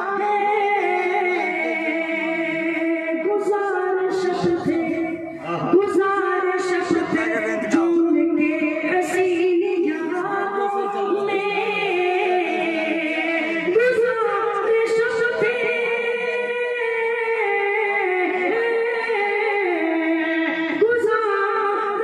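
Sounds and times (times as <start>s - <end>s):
man singing into a microphone: 0.0s - 3.0s, 6.7s - 9.4s.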